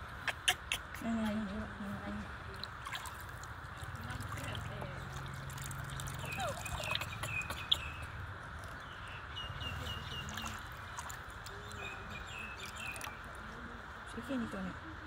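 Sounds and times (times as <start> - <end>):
light water splashes: 2.0 - 14.4
small birds chirping: 4.4 - 13.7.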